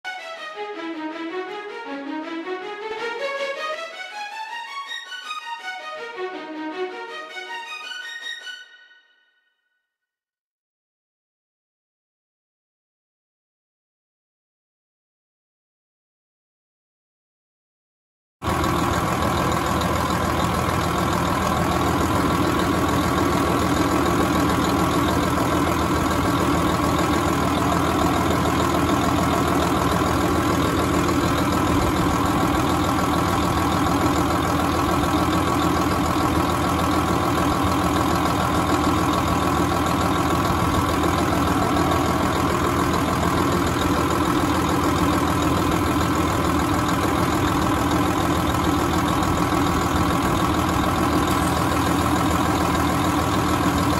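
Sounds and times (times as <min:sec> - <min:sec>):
tractor diesel engine idling: 0:18.4 - 0:53.9.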